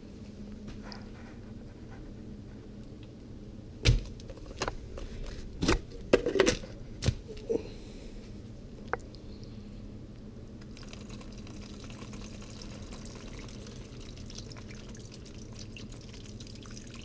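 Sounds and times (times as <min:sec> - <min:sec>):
plastic clatter: 0:05.6 - 0:07.2.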